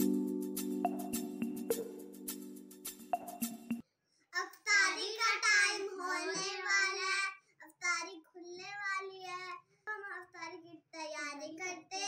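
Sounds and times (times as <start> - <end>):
child singing: 4.4 - 9.4.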